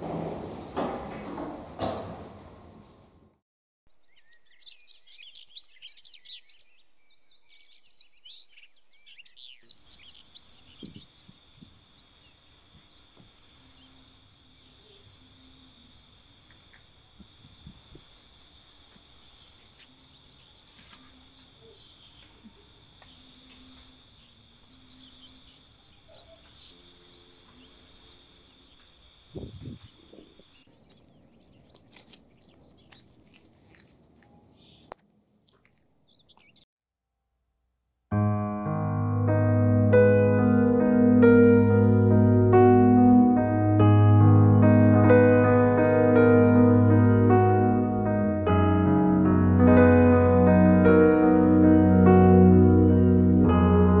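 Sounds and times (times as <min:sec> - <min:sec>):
faint birds chirping: 0:03.9 - 0:33.5, 0:34.2 - 0:35.0, 0:35.8 - 0:36.7
insects humming with pulsing trill: 0:07.1 - 0:31.8.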